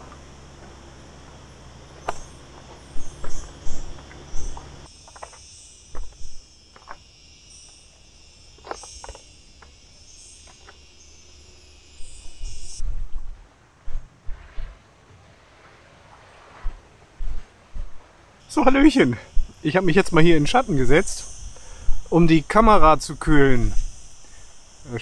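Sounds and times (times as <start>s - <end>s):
cicadas buzzing: 0.0s - 25.0s
low thumps: 16.6s - 18.0s.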